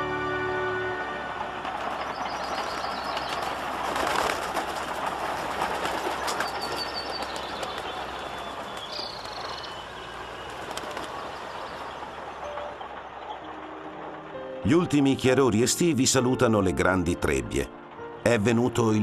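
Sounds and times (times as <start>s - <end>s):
combine harvester running: 0.0s - 18.9s
flapping wings: 1.6s - 12.3s
high-pitched bird calls: 6.2s - 13.7s.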